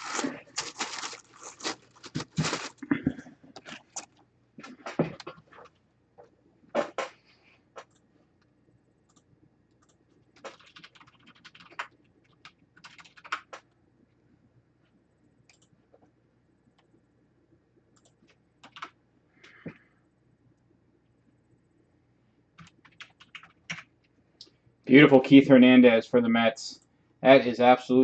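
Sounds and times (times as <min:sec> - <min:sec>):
tissue paper rustling and crinkling: 0:00.0 - 0:02.9.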